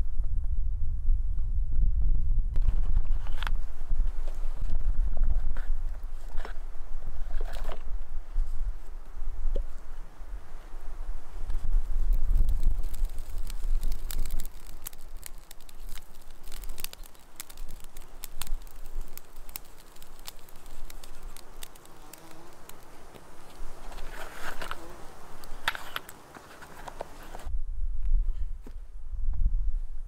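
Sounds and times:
campfire crackling and popping: 0:11.5 - 0:27.5.

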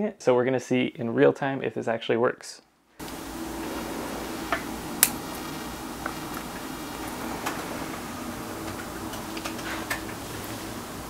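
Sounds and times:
faint low electrical buzz: 0:03.0 - 0:11.0
steady hiss: 0:03.0 - 0:11.0.

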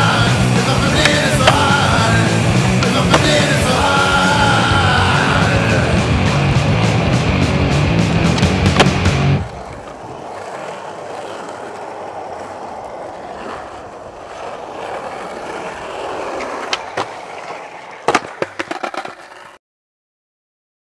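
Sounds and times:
skateboard clacking on ground: 0:00.0 - 0:06.4, 0:08.1 - 0:19.6
skateboard wheels rolling on asphalt: 0:00.0 - 0:19.6.

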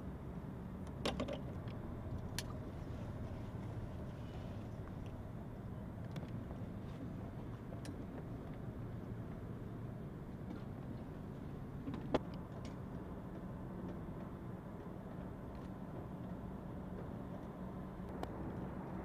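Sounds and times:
low machinery hum: 0:00.0 - 0:19.0.

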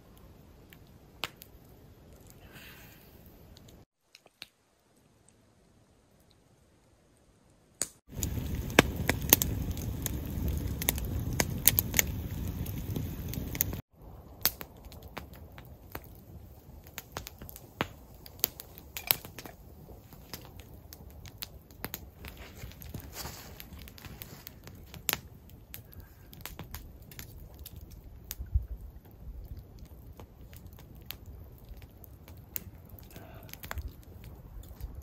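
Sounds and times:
campfire crackling and popping: 0:00.0 - 0:05.4, 0:07.8 - 0:35.0
low rumble: 0:08.1 - 0:14.2.

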